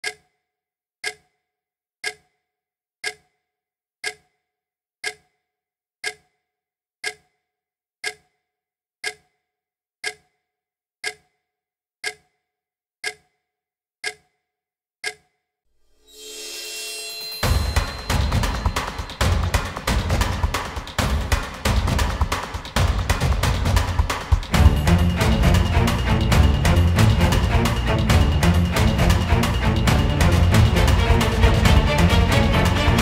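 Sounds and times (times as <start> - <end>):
clock ticking: 0.0 - 0.2, 1.0 - 1.2, 2.0 - 2.2, 3.0 - 3.2, 4.0 - 4.2, 5.0 - 5.2, 6.0 - 6.2, 7.0 - 7.2, 8.0 - 8.2, 9.0 - 9.2, 10.0 - 10.2, 11.0 - 11.2, 12.0 - 12.2, 13.0 - 13.2, 14.0 - 14.2, 15.0 - 15.2, 17.4 - 33.0.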